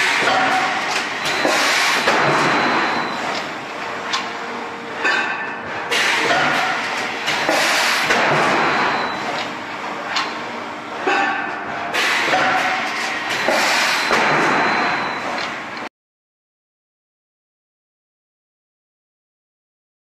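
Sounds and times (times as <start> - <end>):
sharp machine clunks: 0.0 - 3.5, 5.0 - 9.4, 11.0 - 15.8
machinery noise: 0.0 - 15.8.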